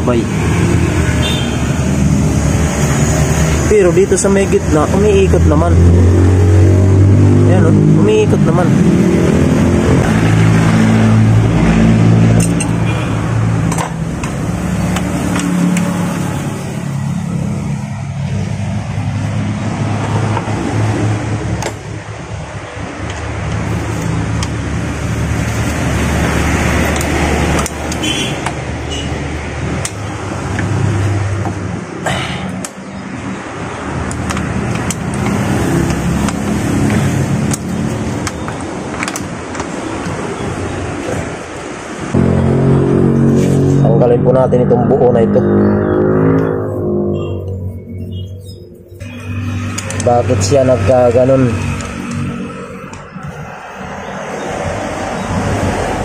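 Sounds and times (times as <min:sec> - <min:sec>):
metallic tool clicks: 0:12.4 - 0:12.8
vehicle engine running: 0:42.1 - 0:45.4.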